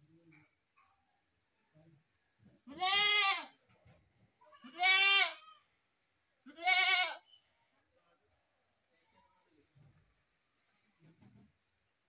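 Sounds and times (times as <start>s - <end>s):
goat bleating: 2.7s - 3.6s, 4.5s - 5.7s, 6.5s - 7.2s.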